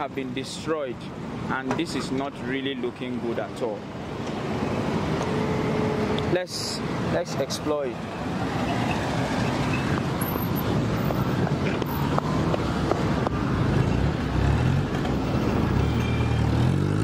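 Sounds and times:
road traffic engine hum: 0.0 - 17.0.

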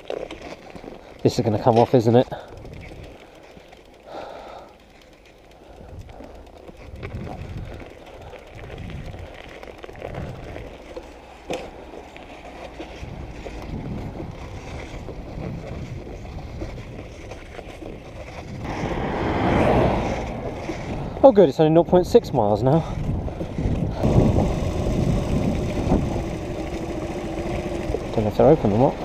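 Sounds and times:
moped riding slowly: 0.0 - 29.0
road noise: 0.7 - 29.0
wind buffeting microphone: 2.4 - 3.2, 5.8 - 9.4, 12.9 - 29.0.

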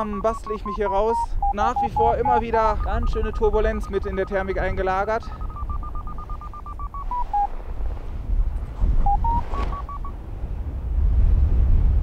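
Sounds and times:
variometer beeping: 0.0 - 7.5, 8.4 - 10.2
wind rumble on microphone: 0.0 - 12.0.

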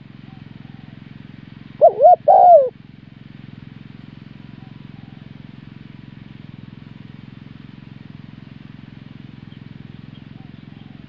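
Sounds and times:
low buzzing hum: 0.0 - 11.0
dove cooing: 1.8 - 2.8.

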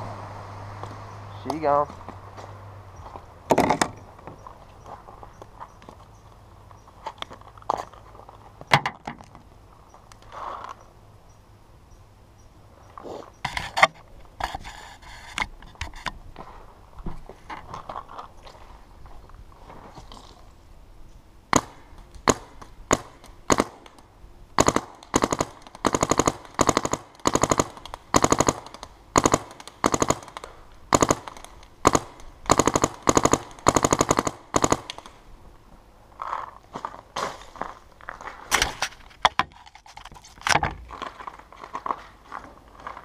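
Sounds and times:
paintball marker firing: 24.6 - 35.2.

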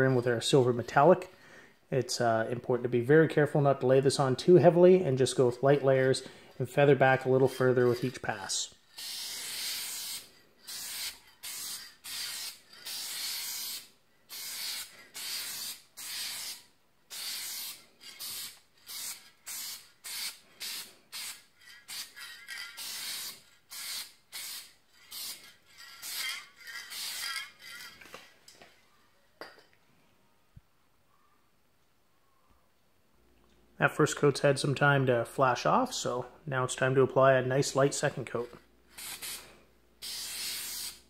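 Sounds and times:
aerosol spray can hissing: 8.9 - 27.8, 38.9 - 41.0.

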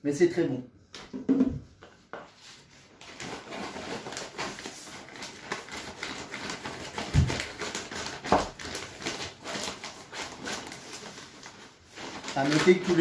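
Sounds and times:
plastic bag crinkling: 2.9 - 13.0.

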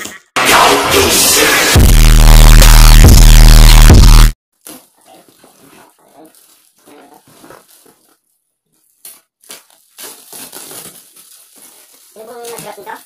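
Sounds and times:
plastic wrap crinkling: 4.6 - 13.0.

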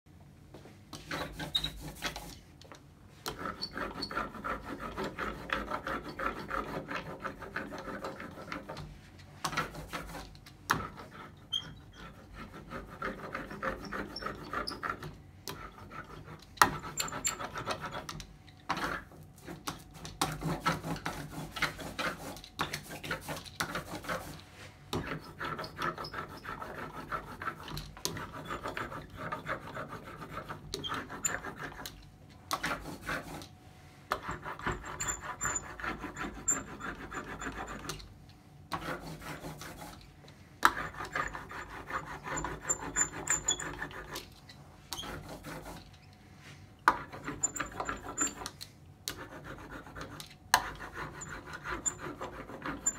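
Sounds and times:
ink roller rubbing on wood: 1.0 - 2.4, 3.3 - 8.8, 9.5 - 18.1, 20.4 - 31.9, 34.2 - 37.9, 40.7 - 44.3, 46.9 - 48.5, 49.2 - 52.9.

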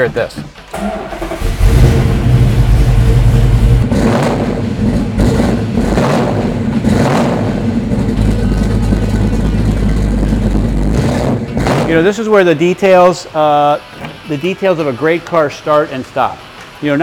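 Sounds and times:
car engine idling: 0.8 - 12.0
car engine revving: 0.8 - 12.2.

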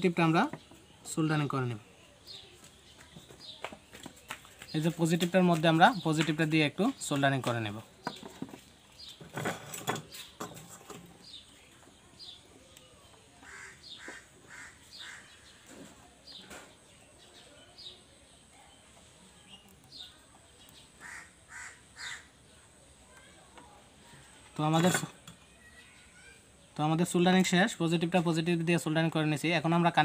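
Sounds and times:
faint bird calls: 12.2 - 17.8, 19.4 - 23.4.

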